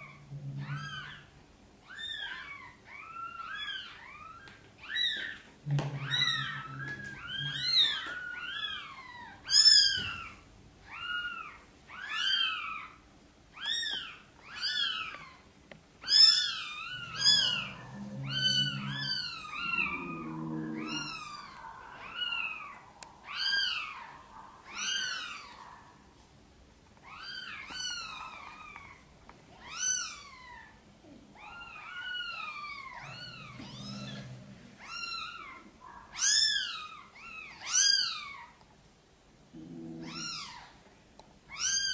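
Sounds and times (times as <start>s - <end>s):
kittens mewing: 0.0s - 1.3s, 1.9s - 13.0s, 13.6s - 25.8s, 27.0s - 38.6s, 39.5s - 40.8s, 41.5s - 41.9s
cat calling low: 5.7s - 9.3s, 16.7s - 22.7s, 32.2s - 36.5s.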